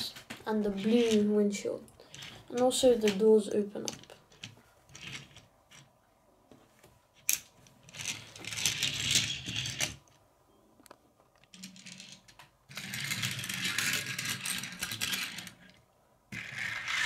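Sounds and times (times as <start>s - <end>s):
toy car wheels rolling on wood: 0.6s - 1.3s, 3.8s - 5.9s, 7.2s - 10.2s, 11.6s - 17.0s.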